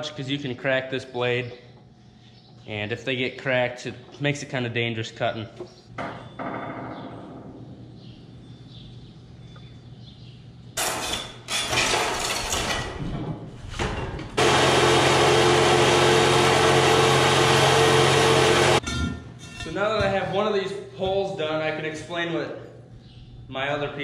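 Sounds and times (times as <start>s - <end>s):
chop saw cutting steel pipe: 14.4s - 18.8s.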